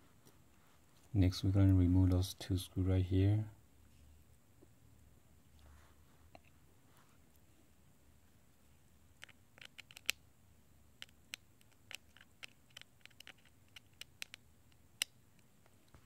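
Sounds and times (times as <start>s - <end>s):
small metal clicks and ticks: 11.0s - 15.5s.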